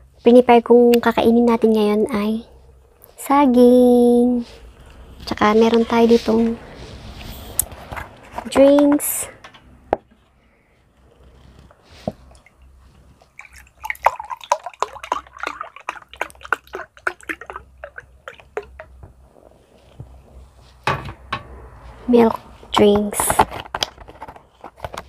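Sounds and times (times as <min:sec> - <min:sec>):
milk pouring with wet clicks: 0:13.2 - 0:19.0.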